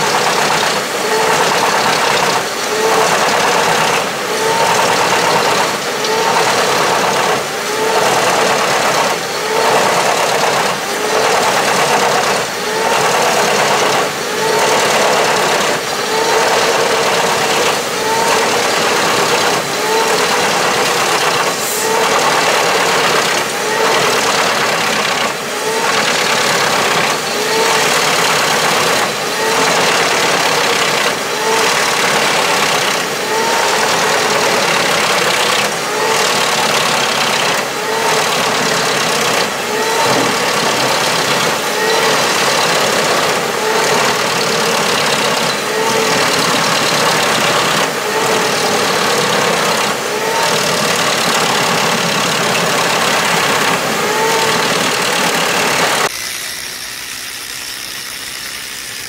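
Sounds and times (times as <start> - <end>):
wood chipper running under load: 0.0 - 59.0.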